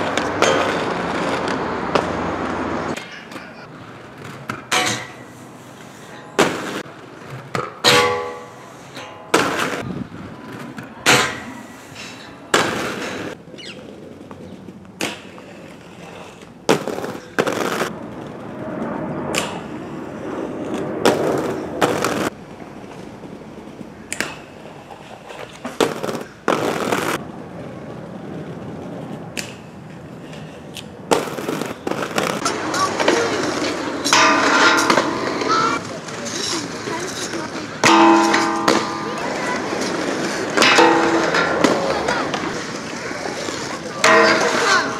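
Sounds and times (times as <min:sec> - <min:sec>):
inline skates rolling on pavement: 0:00.0 - 0:44.9
skates grinding on ledges and rails: 0:00.0 - 0:44.9
sharp landing clacks: 0:31.1 - 0:36.3, 0:37.2 - 0:44.9.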